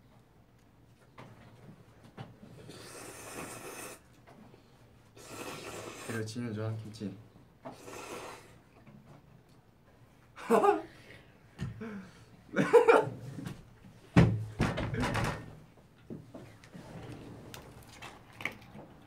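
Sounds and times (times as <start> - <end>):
men laughing: 10.4 - 11.0, 12.5 - 13.2.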